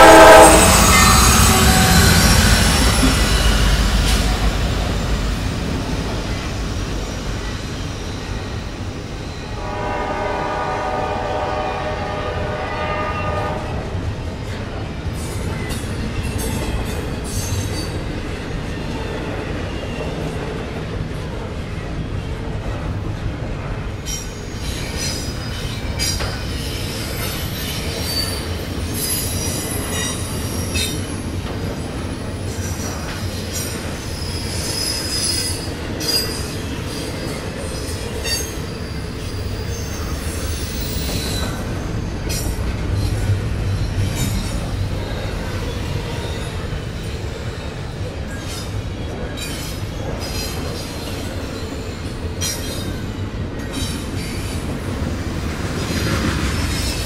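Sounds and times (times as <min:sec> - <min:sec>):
high-pitched wheel squeals: 0:00.0 - 0:05.5
train wheels rumbling on rail: 0:00.0 - 0:57.0.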